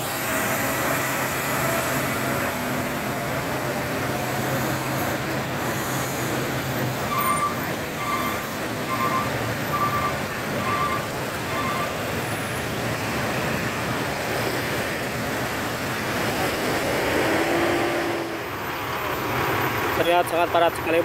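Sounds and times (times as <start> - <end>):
traffic noise: 0.0 - 21.0
high electronic beep: 7.1 - 12.0.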